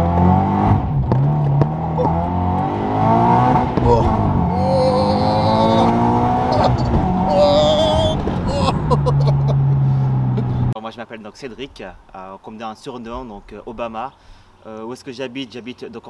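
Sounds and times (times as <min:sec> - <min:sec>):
car engine accelerating hard: 0:00.0 - 0:10.7.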